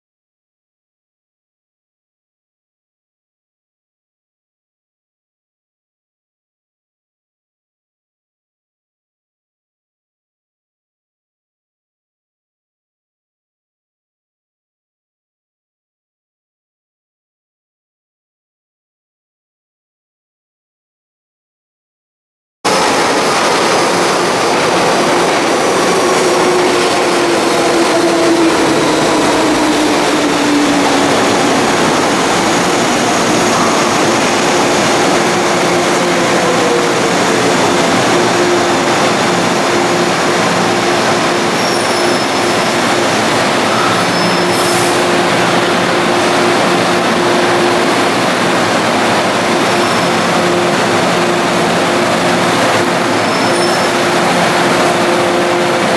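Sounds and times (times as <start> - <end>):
train motor whine: 22.7 - 48.4
metro train rumbling past: 22.7 - 55.9.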